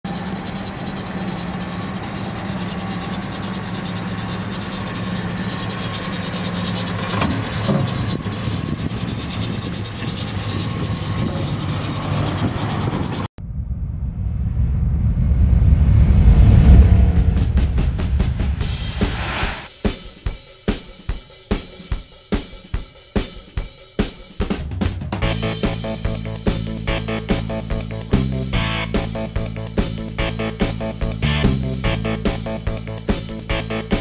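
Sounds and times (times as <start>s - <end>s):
low rumble: 13.4s - 19.7s
car engine idling: 25.2s - 34.0s.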